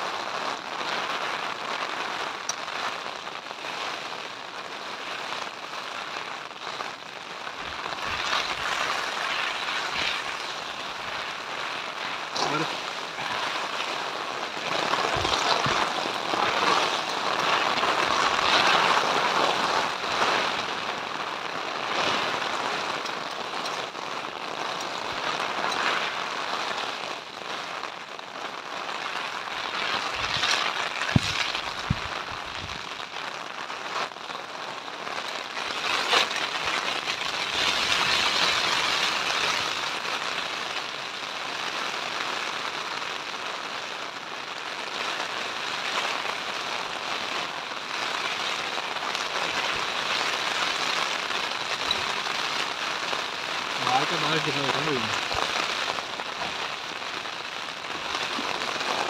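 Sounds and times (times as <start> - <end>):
heavy rain on a tent: 0.0 - 59.0.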